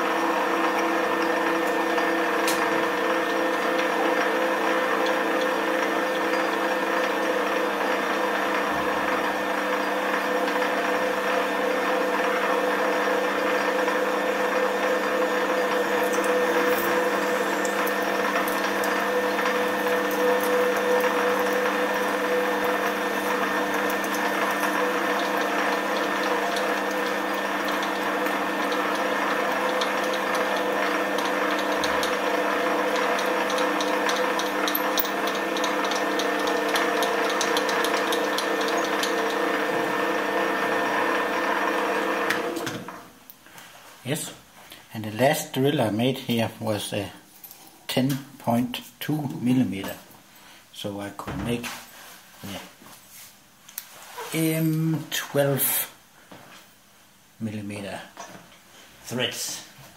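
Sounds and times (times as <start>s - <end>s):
metal lathe humming: 0.0s - 42.8s.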